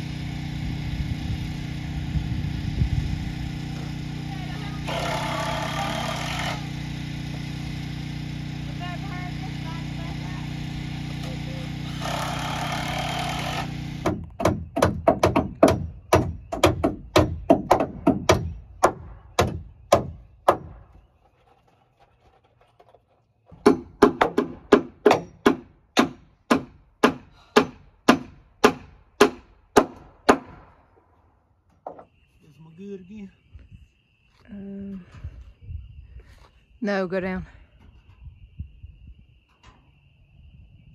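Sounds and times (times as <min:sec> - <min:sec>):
hammer striking nails into wood: 0:12.0 - 0:20.9, 0:23.5 - 0:30.7.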